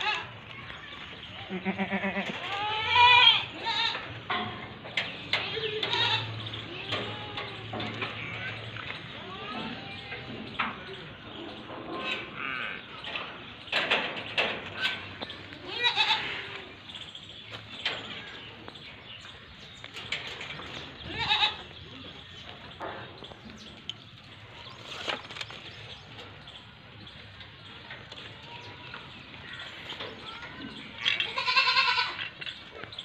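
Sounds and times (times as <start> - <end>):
goat bleating: 0.0 - 0.3, 1.4 - 4.2, 5.4 - 10.3, 15.5 - 16.8, 21.0 - 21.8, 31.0 - 32.4.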